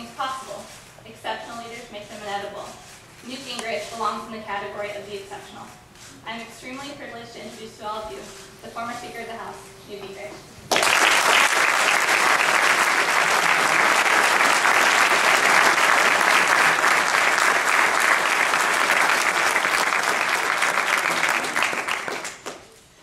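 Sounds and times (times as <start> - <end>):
audience applauding: 10.7 - 22.8.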